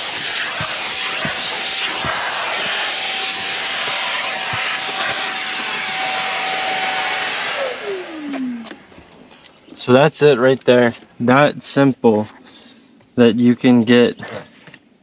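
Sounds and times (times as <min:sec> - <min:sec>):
vacuum cleaner running: 0:00.0 - 0:09.4.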